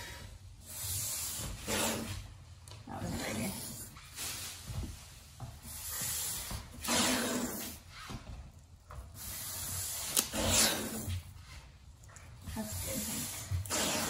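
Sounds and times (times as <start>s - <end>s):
hands rubbing tape on metal: 9.2s - 11.8s.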